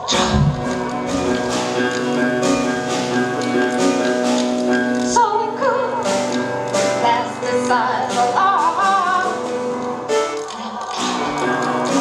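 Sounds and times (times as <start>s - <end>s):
piano chords: 0.0s - 12.0s
woman singing with vibrato: 5.0s - 6.3s, 6.9s - 9.6s.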